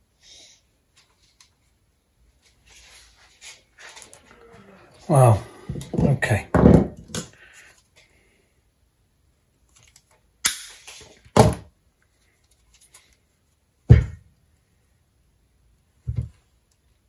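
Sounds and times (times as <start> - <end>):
heavy knock on wood: 5.8 - 7.0
dull thud: 13.9 - 14.2.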